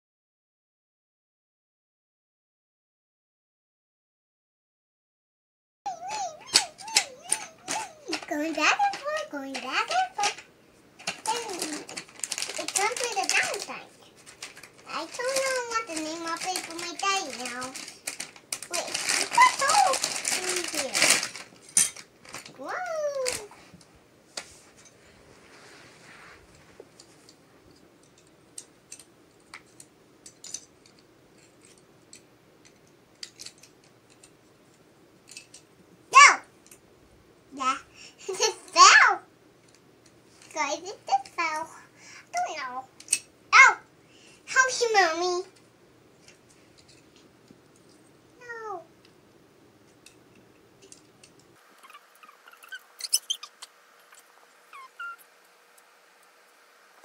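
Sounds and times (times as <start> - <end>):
plastic building blocks clicking: 14.3 - 21.5
brief high squeaks: 51.8 - 55.3.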